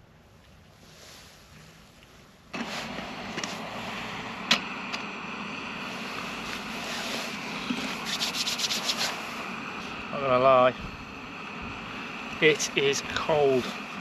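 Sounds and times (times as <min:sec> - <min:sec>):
gas stove burner hissing: 0:02.5 - 0:14.0.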